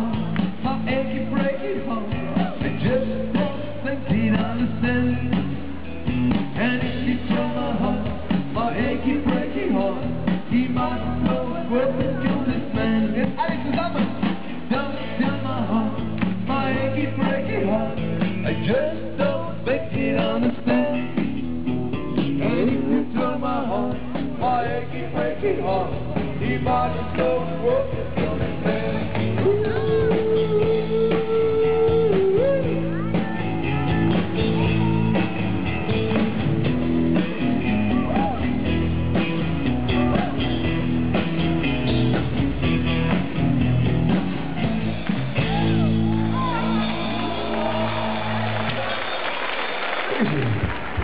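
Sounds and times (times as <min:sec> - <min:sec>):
live country rock band playing: 0:00.0 - 0:48.8
electric guitars: 0:00.0 - 0:49.1.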